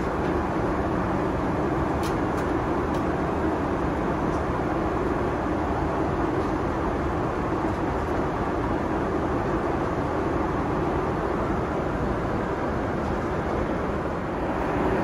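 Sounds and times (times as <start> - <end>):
airplane cabin engine rush: 0.0 - 15.0.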